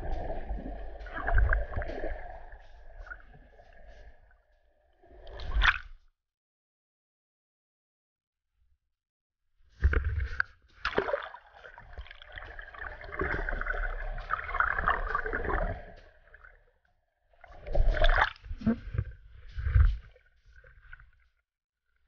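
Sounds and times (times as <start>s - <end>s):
sea water splashing and gurgling: 0.0s - 6.0s, 9.8s - 16.7s, 17.3s - 21.4s.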